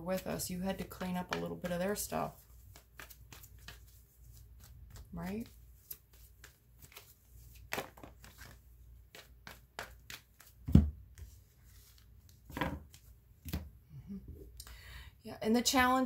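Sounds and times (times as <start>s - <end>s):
cards tapping and slapping on a table: 2.6s - 11.4s.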